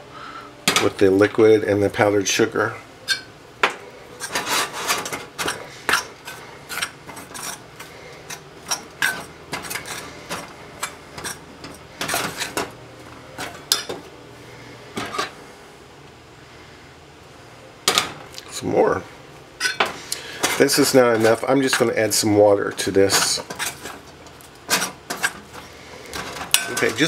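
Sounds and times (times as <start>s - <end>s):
metal spoon scraping a bowl: 4.2s - 7.6s.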